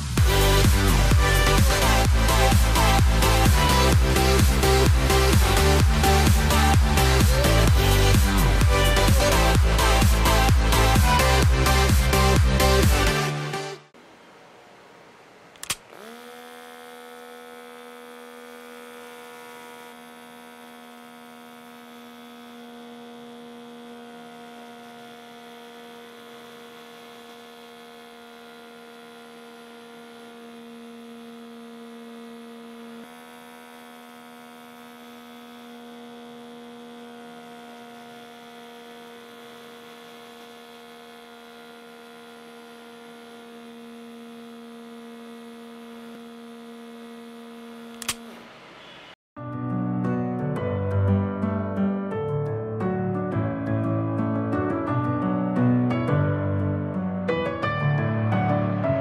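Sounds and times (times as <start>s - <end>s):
small electric motor humming: 0.0s - 13.6s, 15.5s - 49.2s
click: 15.5s - 16.0s, 47.9s - 48.4s.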